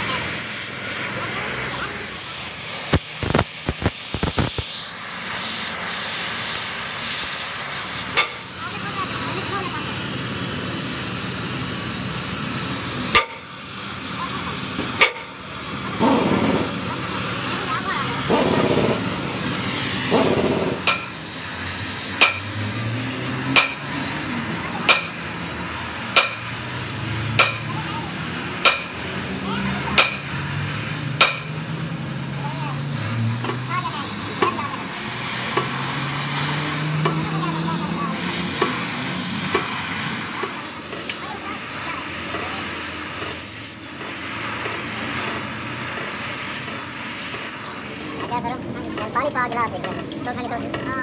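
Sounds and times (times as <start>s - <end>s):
torch flame hissing: 0.0s - 48.4s
sharp pops: 2.7s - 5.3s, 8.1s - 8.4s, 13.1s - 13.5s, 18.2s - 21.2s, 22.2s - 22.5s, 23.5s - 23.8s, 24.9s - 25.2s, 26.1s - 26.5s, 27.3s - 27.7s, 28.6s - 29.0s, 30.0s - 30.2s, 31.2s - 31.6s
sledgehammer striking steel: 20.1s - 21.2s, 22.2s - 22.5s, 23.5s - 23.8s, 26.1s - 26.4s, 27.4s - 27.6s, 28.6s - 29.0s, 30.0s - 30.2s, 31.2s - 31.5s.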